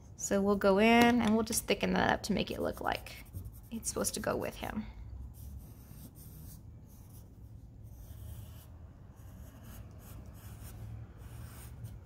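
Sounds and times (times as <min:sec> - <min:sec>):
pencil scratching on paper: 0:02.5 - 0:04.5, 0:05.3 - 0:12.0.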